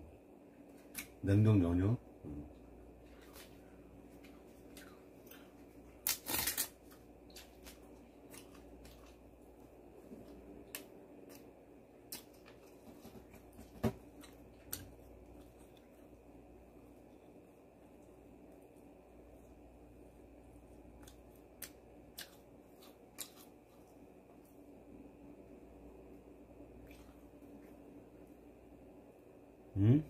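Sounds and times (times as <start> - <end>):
crunching fried food: 3.0 - 9.6, 20.2 - 24.6.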